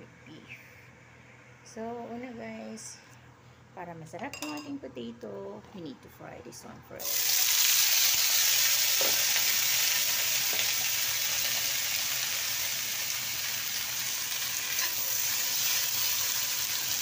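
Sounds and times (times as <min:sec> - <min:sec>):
potatoes sizzling in hot oil: 0:07.0 - 0:17.0.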